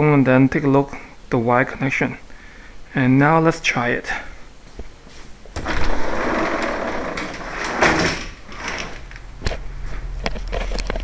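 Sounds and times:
sliding door rolling on track: 0:05.6 - 0:09.2.

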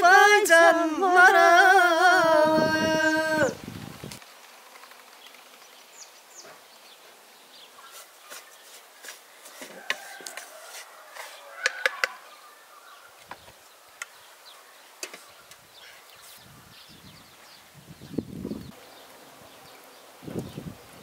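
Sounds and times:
birds calling: 0:02.1 - 0:21.0
wooden spoon clicking on metal pan: 0:11.6 - 0:12.2.

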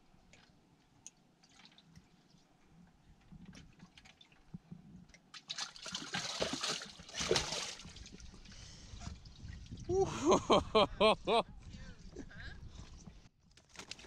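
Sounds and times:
water splashing in livewell: 0:00.3 - 0:02.5, 0:05.2 - 0:10.2.

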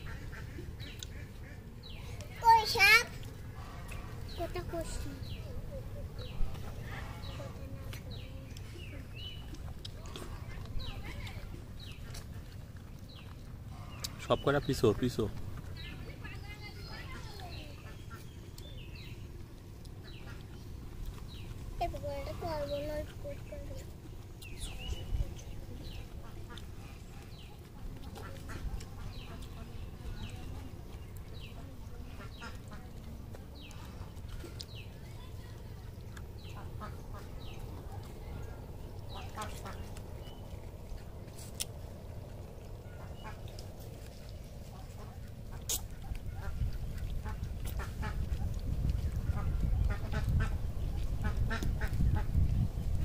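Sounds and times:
bird calling: 0:00.0 - 0:52.4
low rumble: 0:15.3 - 0:53.0.

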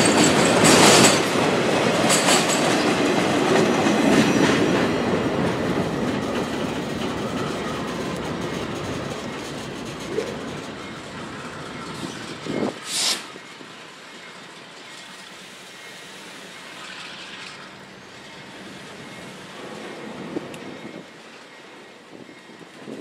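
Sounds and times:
train wheels on rails: 0:00.0 - 0:23.0
sharp hiss-like burst: 0:12.8 - 0:13.4.

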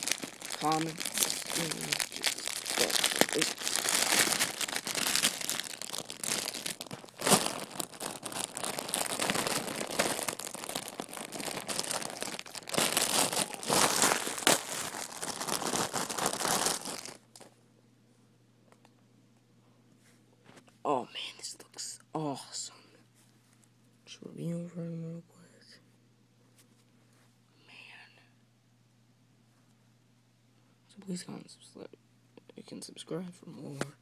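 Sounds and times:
rustling handling noise: 0:00.0 - 0:17.5.

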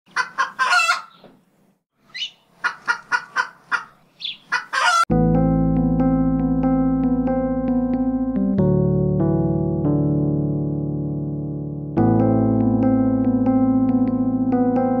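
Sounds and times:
chicken clucking: 0:00.1 - 0:01.4, 0:02.1 - 0:05.0
electric piano chord: 0:05.1 - 0:15.0.

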